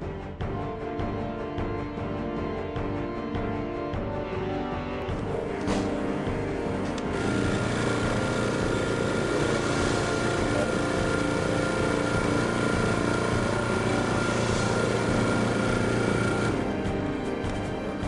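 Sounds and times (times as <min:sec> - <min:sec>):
vacuum pump running: 0:05.2 - 0:18.0
thin high whine: 0:06.7 - 0:16.8.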